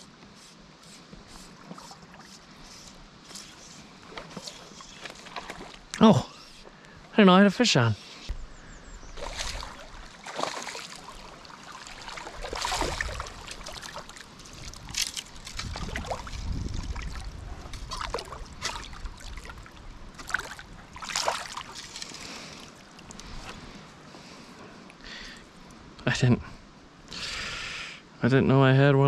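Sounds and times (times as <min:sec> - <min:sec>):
fish splashing in water: 0:09.2 - 0:23.0.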